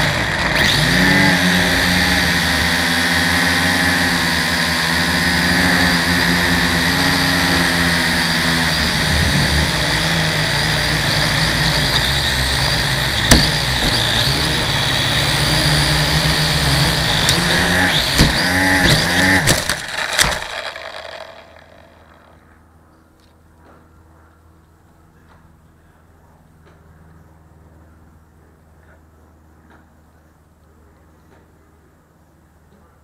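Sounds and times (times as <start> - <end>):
electric motors and propellers whirring: 0.0 - 24.7.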